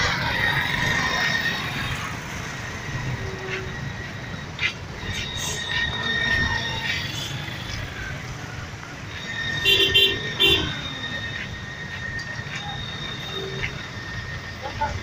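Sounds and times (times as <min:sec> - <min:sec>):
traffic engine rumble: 0:00.0 - 0:15.0
vehicle horn short toots: 0:09.6 - 0:10.7.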